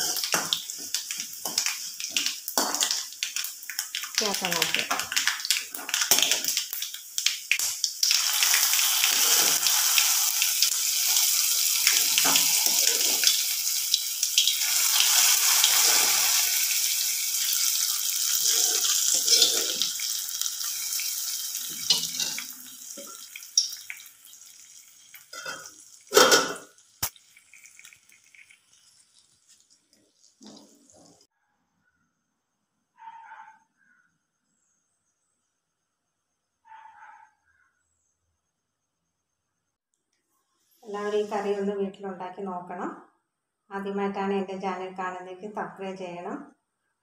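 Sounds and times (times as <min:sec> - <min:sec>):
hot oil sizzling: 0:00.0 - 0:31.3.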